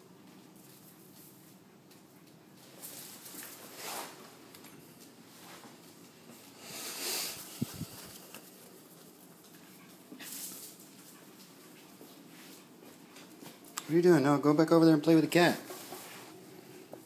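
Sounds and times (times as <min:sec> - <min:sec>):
small animals scurrying on floor: 0:00.2 - 0:13.8.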